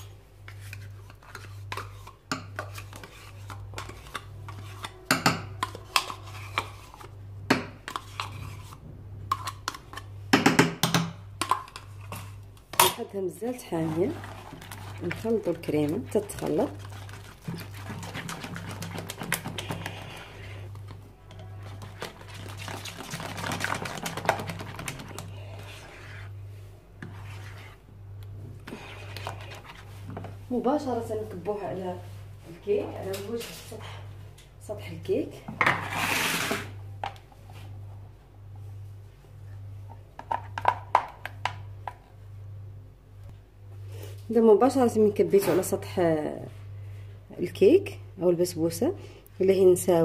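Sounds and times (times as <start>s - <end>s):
low steady hum: 0.0s - 50.0s
spoon scraping plastic cup: 0.5s - 7.2s, 7.9s - 10.1s, 13.6s - 26.4s, 27.0s - 27.8s, 28.6s - 30.3s, 35.6s - 36.8s.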